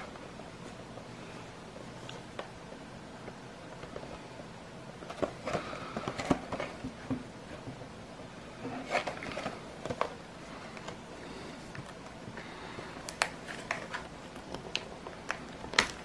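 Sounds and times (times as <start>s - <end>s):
plastic blister pack crackling: 13.0s - 16.0s.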